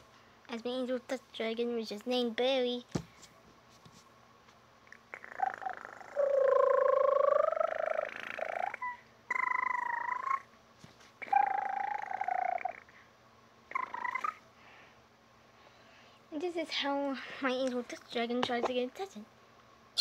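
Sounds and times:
girl imitating cat purr: 4.9 - 10.5, 11.2 - 13.0, 13.7 - 14.4.

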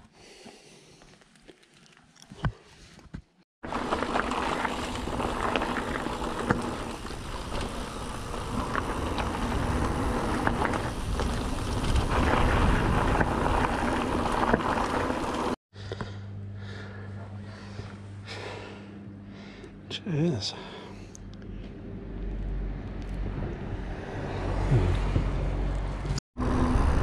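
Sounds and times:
mountain bike tyres on rough trail: 3.6 - 15.6
wind noise: 4.1 - 15.5.

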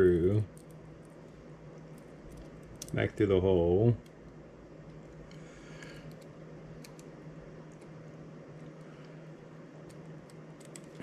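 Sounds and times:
low room hum: 0.0 - 11.0
faint sharp clicks of handled parts: 4.9 - 7.1, 8.6 - 11.0.

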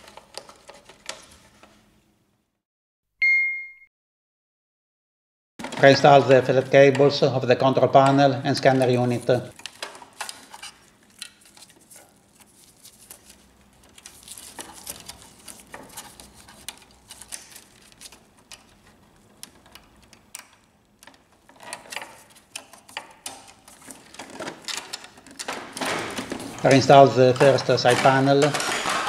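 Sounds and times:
plastic parts clicking: 13.8 - 29.0.

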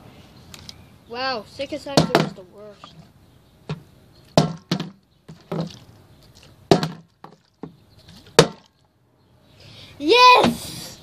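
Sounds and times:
plastic bottle knocking on wooden boards: 2.0 - 2.4, 4.4 - 5.8, 6.7 - 8.7.

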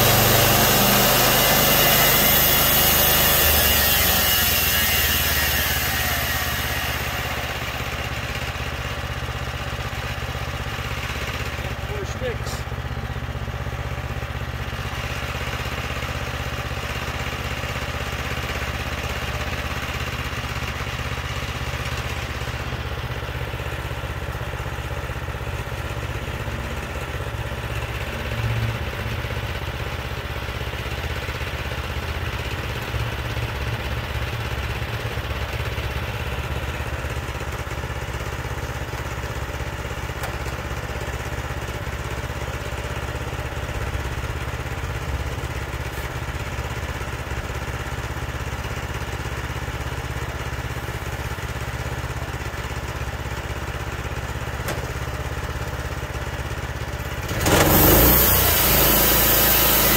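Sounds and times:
gasoline engine idling: 7.2 - 17.6, 18.2 - 57.3.

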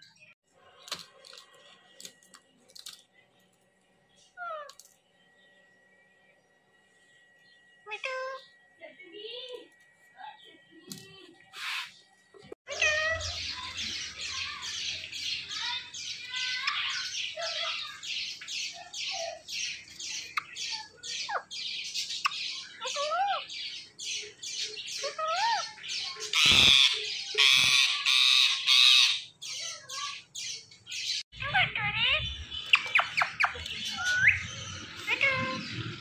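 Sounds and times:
parakeets screeching: 11.5 - 12.0, 12.7 - 36.0
whistled bird notes: 32.3 - 35.8.

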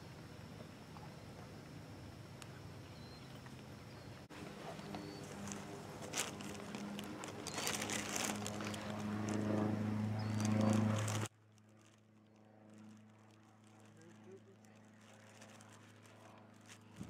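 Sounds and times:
engine drone: 0.0 - 17.0
faint hum: 0.0 - 17.0
rustling and crackling: 4.3 - 17.0.

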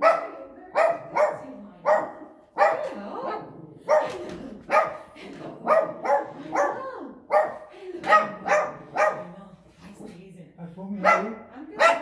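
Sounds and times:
small dog barking: 0.0 - 5.0, 5.7 - 9.3, 11.0 - 12.0.

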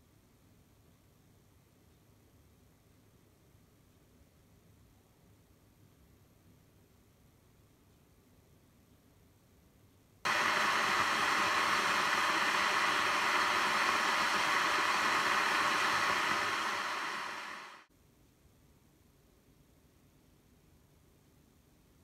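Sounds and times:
kettle water boiling: 10.3 - 17.9.

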